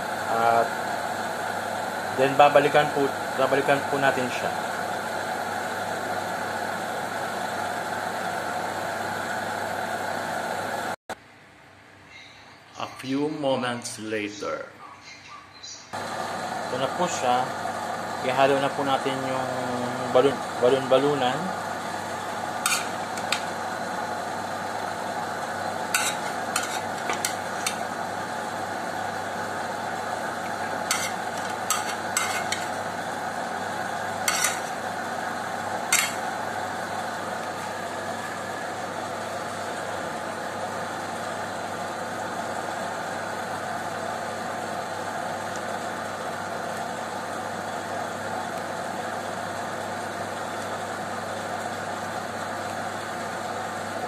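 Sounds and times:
sauce simmering and sizzling: 21.5s - 53.9s
spoon scraping a frying pan: 22.6s - 23.5s, 25.9s - 27.9s, 30.4s - 32.8s, 34.2s - 34.8s, 35.9s - 36.2s.

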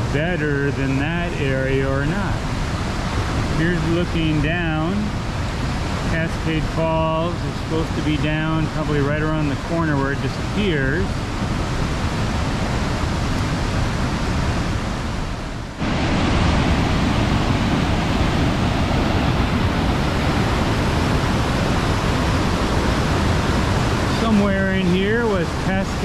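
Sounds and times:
river water rushing over rocks: 0.8s - 26.0s.

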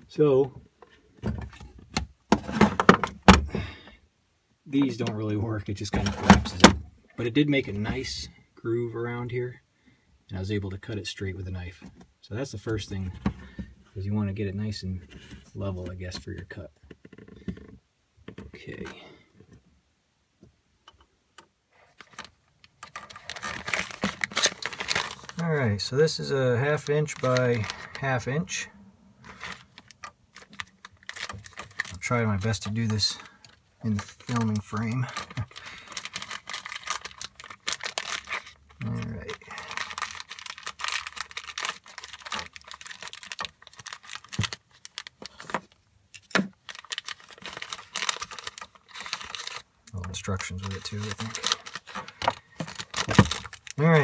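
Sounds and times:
paper packet rustling: 21.9s - 25.8s, 26.5s - 28.5s, 29.2s - 54.0s.

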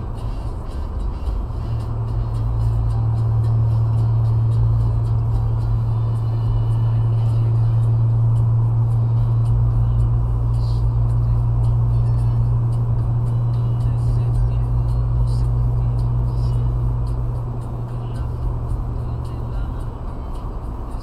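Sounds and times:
car engine drone inside cabin: 0.0s - 21.0s.

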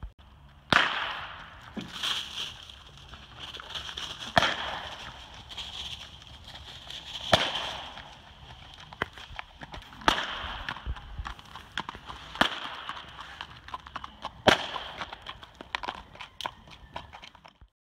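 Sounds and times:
horse hooves on gravel: 0.1s - 17.7s
loud sharp cracks: 0.7s - 2.2s, 4.3s - 5.2s, 7.2s - 8.1s, 10.0s - 10.9s, 12.3s - 13.1s, 14.4s - 15.1s.

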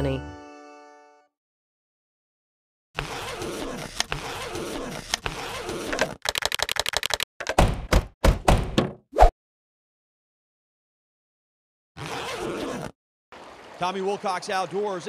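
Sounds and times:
keyboard key clicks: 6.2s - 7.6s.

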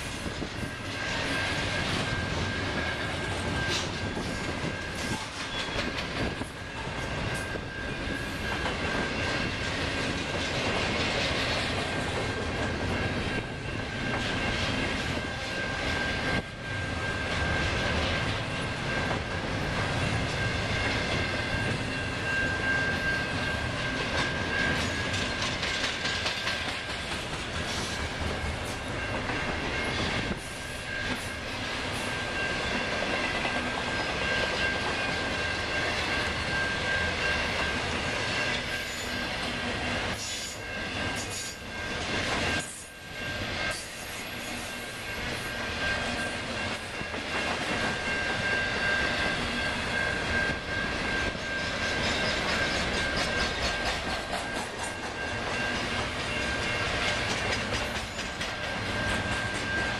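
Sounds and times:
freight train cars rolling: 0.0s - 59.9s
wheels clattering over rail joints: 23.9s - 30.4s, 51.5s - 59.9s.

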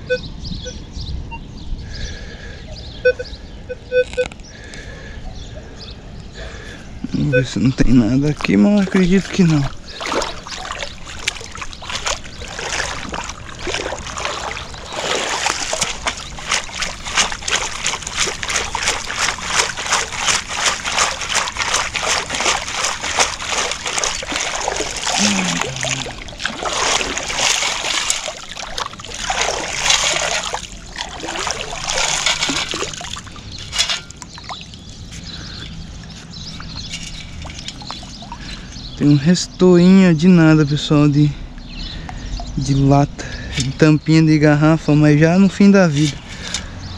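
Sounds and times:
water sloshing and splashing: 8.2s - 39.0s
scoop rattling: 9.2s - 34.8s, 36.5s - 38.6s.

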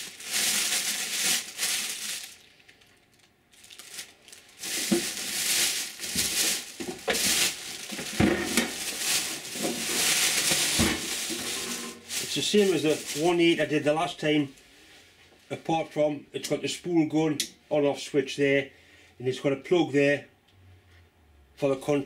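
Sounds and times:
plastic bag crinkling: 0.0s - 14.2s.

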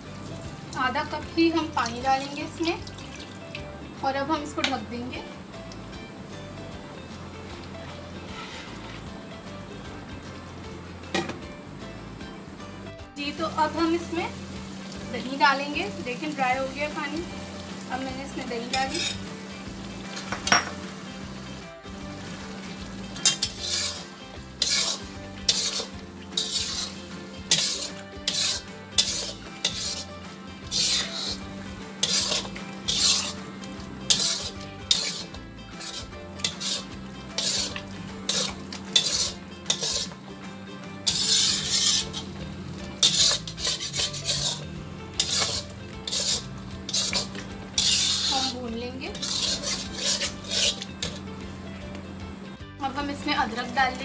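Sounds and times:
curry sizzling: 0.0s - 54.0s
metal spatula scraping iron pan: 8.2s - 9.1s, 18.4s - 19.4s, 20.0s - 20.8s, 23.1s - 40.2s, 41.0s - 51.3s.

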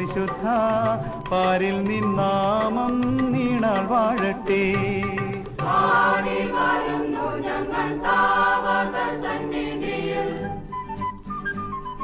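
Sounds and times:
choir singing devotional song: 5.6s - 10.7s.

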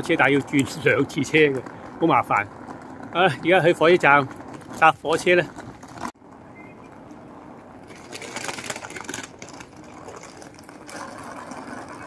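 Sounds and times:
suitcase wheels rattling over tiles: 0.0s - 6.4s, 7.2s - 12.0s.

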